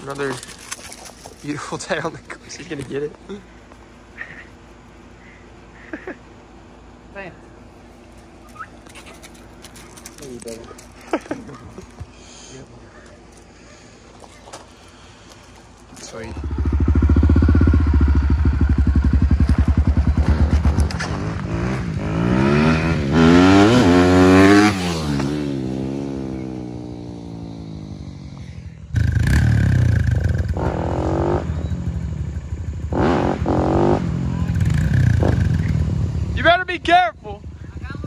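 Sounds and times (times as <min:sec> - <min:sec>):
dirt bike engine revving: 0:16.2 - 0:36.5.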